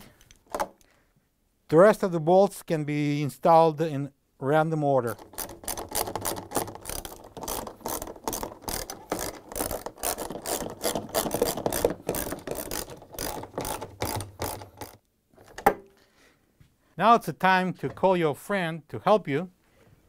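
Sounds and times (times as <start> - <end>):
ratchet wrench clicking: 5.2 - 15.0.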